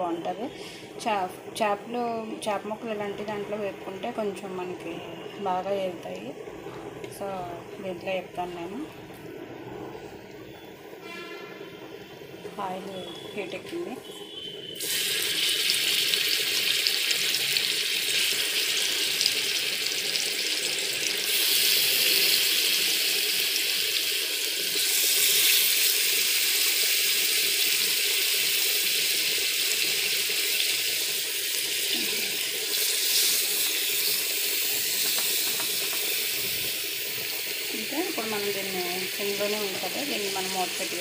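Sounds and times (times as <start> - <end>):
fish sizzling in hot oil: 12.0 - 41.0.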